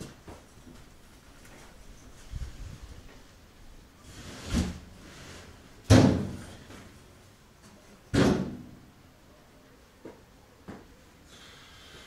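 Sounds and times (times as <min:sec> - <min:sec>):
heavy bangs echoing in shed: 0:08.1 - 0:08.8.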